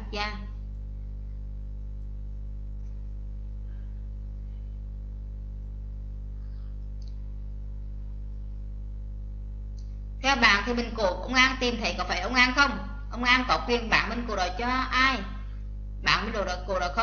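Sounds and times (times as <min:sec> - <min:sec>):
electrical mains hum: 0:00.0 - 0:17.0
faint clicks: 0:06.9 - 0:07.2.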